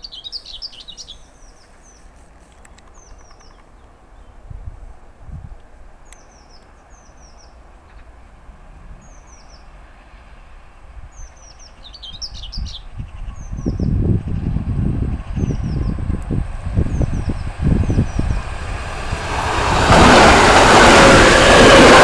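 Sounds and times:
songbirds chirping: 0.0 - 5.0, 6.0 - 8.2, 9.0 - 10.0, 11.1 - 18.7
train approaching rumble: 3.0 - 22.0.

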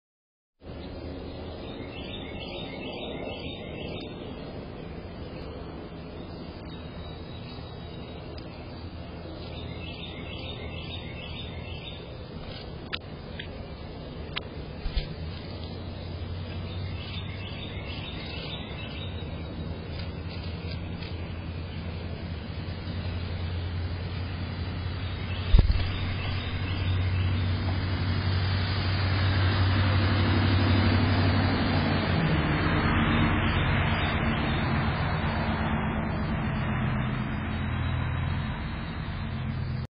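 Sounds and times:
low background rumble: 0.6 - 34.4
motor vehicle hum: 0.6 - 39.9
high bird chirps: 16.5 - 21.4, 25.0 - 27.7
sharp knock: 25.5 - 26.9.

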